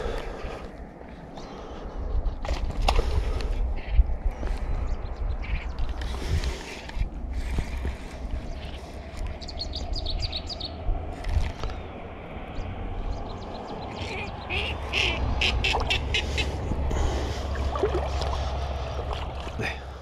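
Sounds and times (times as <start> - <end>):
wind rumbling on microphone: 0.0 - 20.0
high-pitched bird calls: 12.6 - 16.6.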